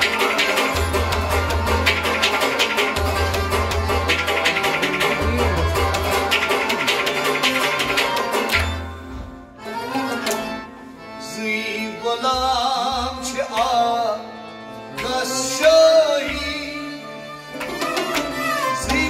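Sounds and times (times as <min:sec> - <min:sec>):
tabla strokes: 0:00.0 - 0:09.1
sustained melodic accompaniment: 0:00.0 - 0:19.0
man singing: 0:04.6 - 0:07.3, 0:11.2 - 0:17.4, 0:18.0 - 0:19.0.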